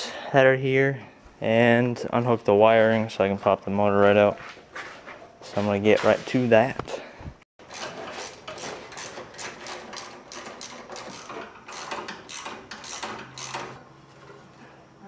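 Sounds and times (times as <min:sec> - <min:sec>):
ratchet wrench clicking: 0:09.0 - 0:13.8.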